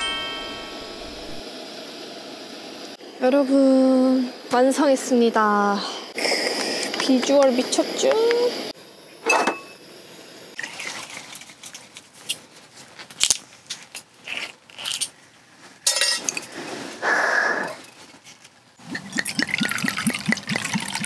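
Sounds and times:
liquid glugging into cup: 0:18.8 - 0:21.0.

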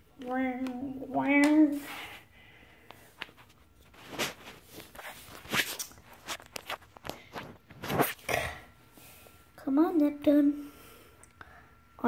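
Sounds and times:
soft scuffs and rustles: 0:02.9 - 0:08.3.

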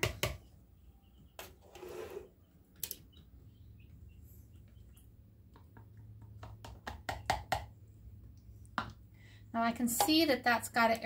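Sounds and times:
faint bird chirps: 0:00.4 - 0:01.6
cup scraping: 0:01.4 - 0:02.4.

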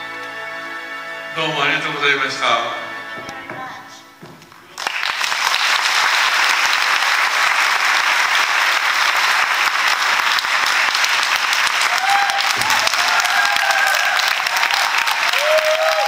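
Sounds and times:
audience applauding: 0:04.4 - 0:16.0.

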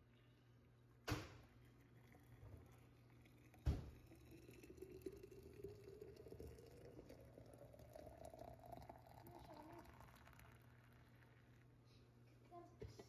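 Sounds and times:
hot drink pouring into flask: 0:01.5 - 0:11.8.

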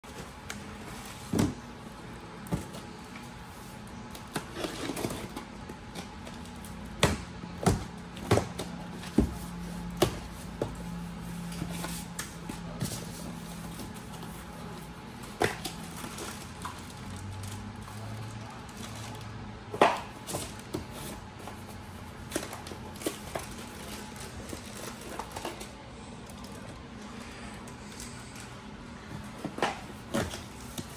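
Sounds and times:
cardboard and packing knocks and rustles: 0:00.1 - 0:01.7, 0:07.0 - 0:14.4, 0:29.1 - 0:30.9.

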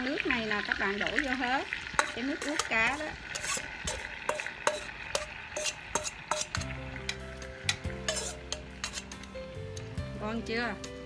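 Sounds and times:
fish frying sizzle: 0:00.0 - 0:11.0
tongs scraping metal bowl: 0:01.7 - 0:09.5.

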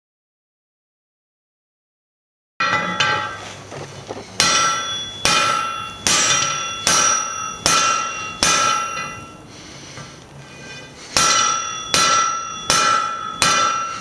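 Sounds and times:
anvil ringing: 0:02.6 - 0:03.7, 0:04.4 - 0:09.5, 0:10.5 - 0:14.0
hammer striking steel on anvil: 0:02.6 - 0:03.7, 0:04.4 - 0:09.5, 0:10.5 - 0:14.0.

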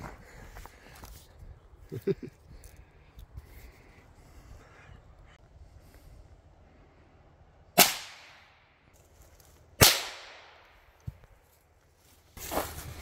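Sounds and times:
rifle shots with echo: 0:07.8 - 0:08.7, 0:09.8 - 0:10.8.

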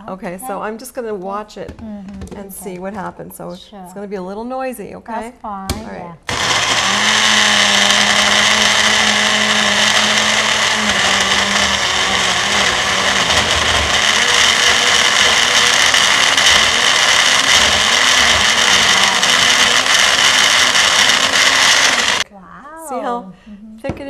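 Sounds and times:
blender motor running: 0:06.3 - 0:22.3.

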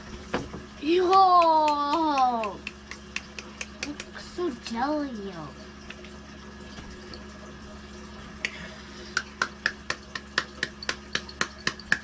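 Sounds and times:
sticky hands clapping: 0:01.0 - 0:04.2, 0:09.2 - 0:12.0.

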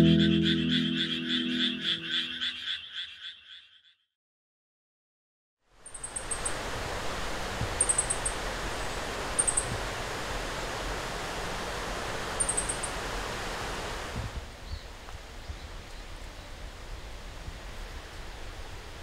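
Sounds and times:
short high trills: 0:00.0 - 0:02.3
steady rushing hiss: 0:06.0 - 0:14.4.

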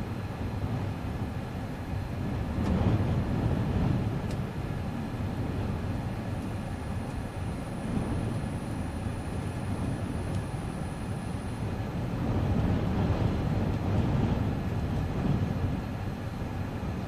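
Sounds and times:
wind gusts buffeting a car: 0:00.0 - 0:17.0
faint ticks: 0:10.2 - 0:10.5.

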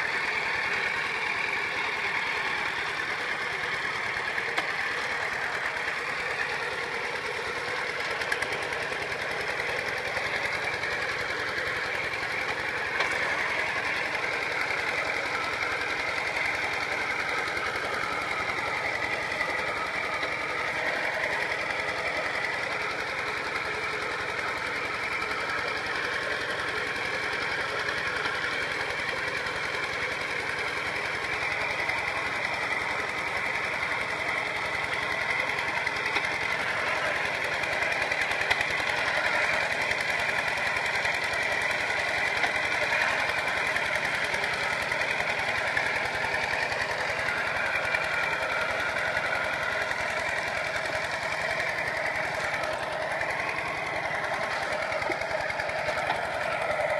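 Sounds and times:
single-cylinder diesel engine running: 0:00.0 - 0:56.9.

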